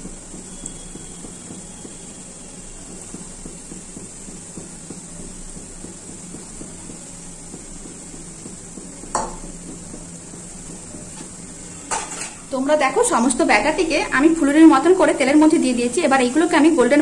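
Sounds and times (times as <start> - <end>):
oil sizzling while deep-frying: 0.0 - 17.0.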